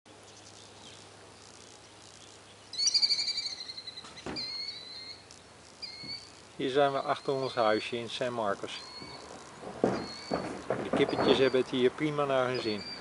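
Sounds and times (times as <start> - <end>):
songbird trilling and whistling: 2.1 - 7.8, 8.7 - 9.3.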